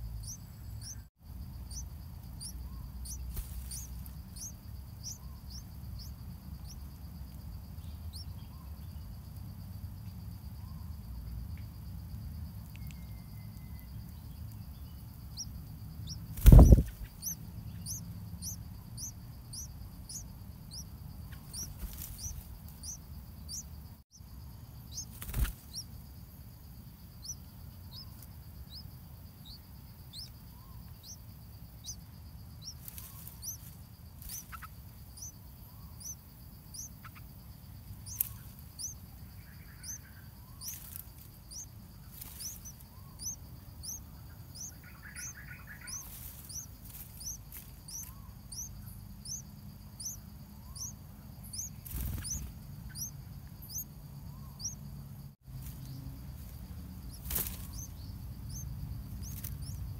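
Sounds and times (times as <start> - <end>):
nestlings peeping: 0.0 - 59.9
leaves rustling: 3.2 - 4.3, 32.8 - 34.6, 45.9 - 47.9, 55.4 - 58.4.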